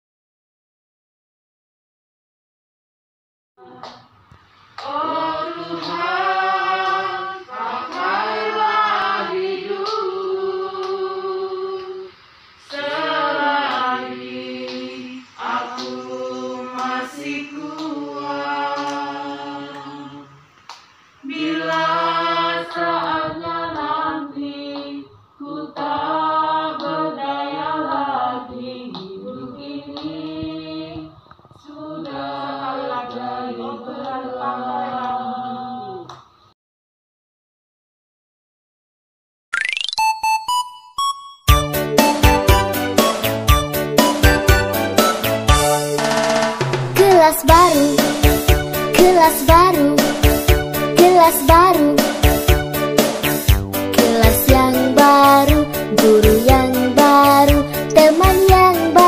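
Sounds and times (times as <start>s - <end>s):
people singing unaccompanied: 3.6s - 4.1s, 4.8s - 20.6s, 21.2s - 36.1s, 47.0s - 48.4s, 49.0s - 53.4s, 54.0s - 59.0s.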